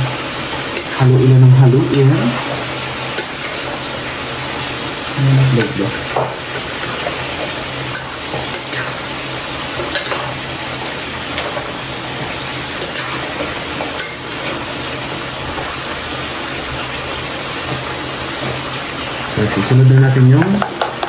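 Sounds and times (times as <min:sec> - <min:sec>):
food sizzling in a pan: 0:00.0 - 0:21.0
spoon scraping a pan: 0:00.5 - 0:01.1, 0:01.7 - 0:04.0, 0:04.6 - 0:14.7.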